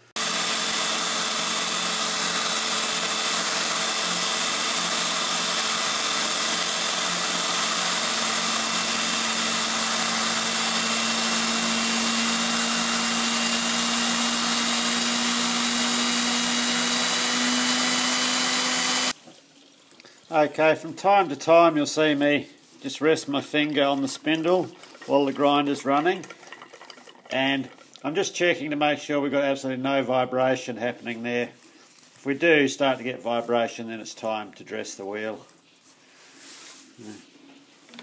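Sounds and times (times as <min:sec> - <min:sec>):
grinder whining and grinding: 0:00.0 - 0:19.2, 0:23.6 - 0:28.0.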